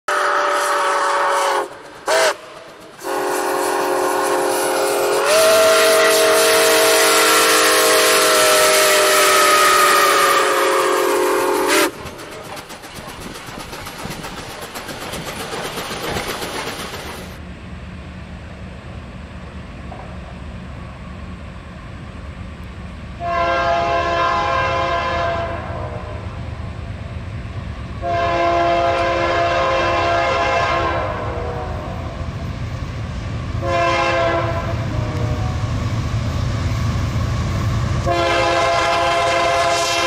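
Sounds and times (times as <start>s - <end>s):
steam locomotive chime whistle: 0.1s - 12.0s, 23.2s - 26.3s, 28.0s - 32.1s, 33.6s - 35.7s, 38.0s - 40.0s
train rumbling past: 0.1s - 40.0s.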